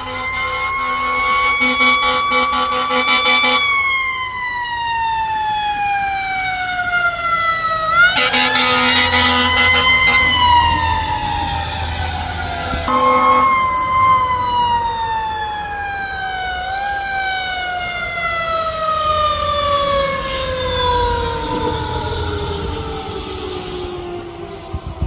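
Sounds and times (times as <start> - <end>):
horn blast: 0.0 - 3.8, 8.1 - 10.9, 12.7 - 13.9
fire engine siren wailing: 0.0 - 25.0.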